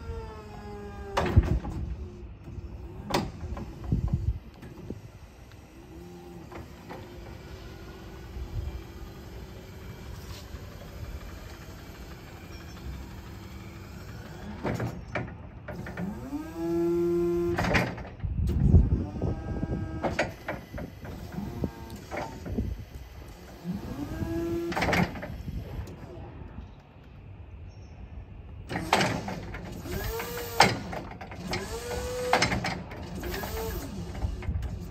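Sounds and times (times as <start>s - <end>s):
electric forklift motor whining: 0.0s - 26.2s, 28.7s - 34.9s.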